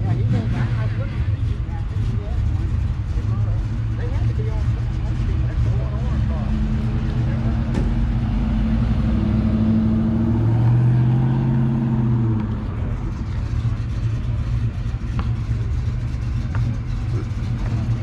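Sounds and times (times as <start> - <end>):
car engine pulling away: 2.0 - 18.0.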